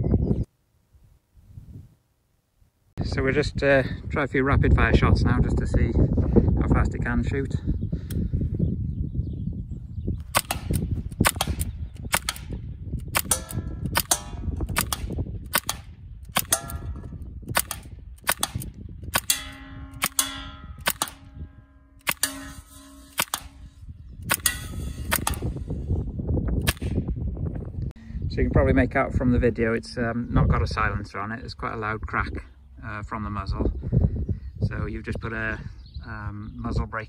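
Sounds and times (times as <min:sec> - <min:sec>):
air rifle shots: 0:10.3 - 0:25.9, 0:26.6 - 0:27.1.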